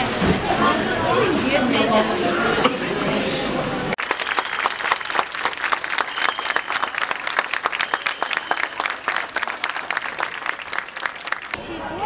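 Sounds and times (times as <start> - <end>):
crowd clapping: 4.0 - 11.7.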